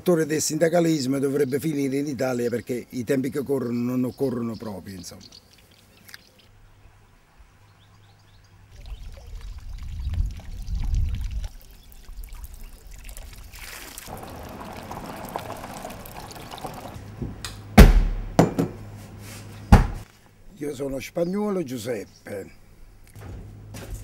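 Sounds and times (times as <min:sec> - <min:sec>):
water pouring from fountain: 0:08.8 - 0:17.0
low rumbling: 0:14.1 - 0:19.1
loud sharp knock: 0:17.8 - 0:18.8.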